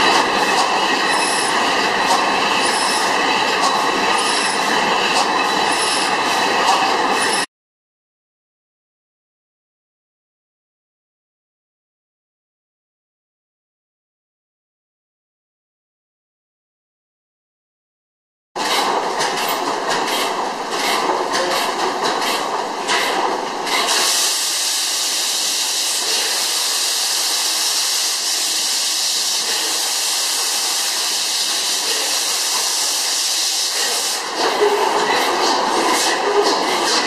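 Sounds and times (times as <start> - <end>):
loud steady hiss: 23.9 - 34.3.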